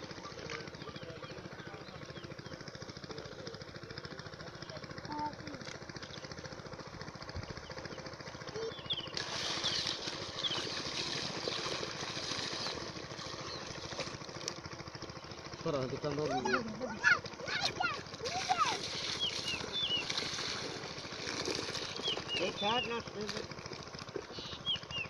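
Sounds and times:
small engine running: 0.0 - 25.0
water splashing into basket: 9.1 - 14.6, 17.4 - 24.3.

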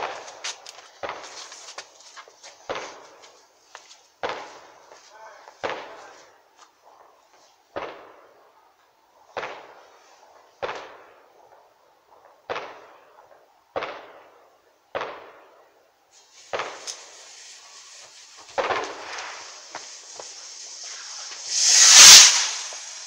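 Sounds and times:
fireworks bangs with echo: 4.2 - 8.4, 9.3 - 11.3, 12.2 - 15.6, 16.2 - 23.0.

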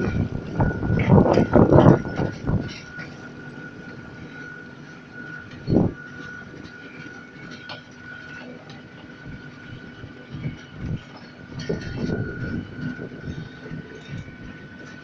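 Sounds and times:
monorail train running: 0.0 - 15.0.

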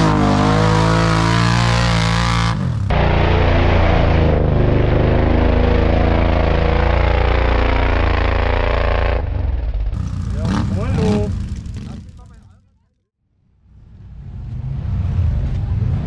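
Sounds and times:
off-road vehicle engine revving: 0.0 - 12.6
engine running at lower speed: 0.0 - 16.0.

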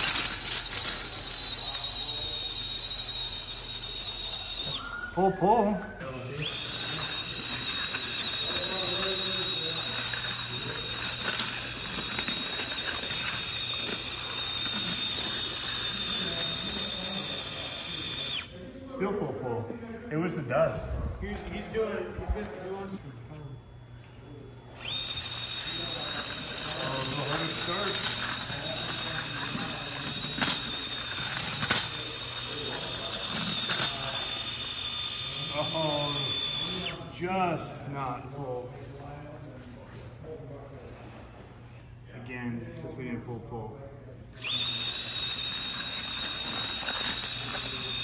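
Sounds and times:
electric motor high whine: 0.0 - 18.6, 22.2 - 37.1, 44.4 - 48.0.

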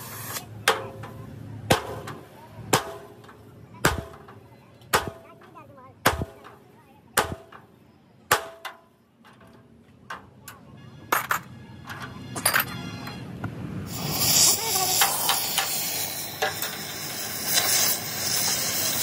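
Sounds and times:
hammer striking metal: 0.6 - 6.6, 7.2 - 7.7, 8.3 - 9.5.

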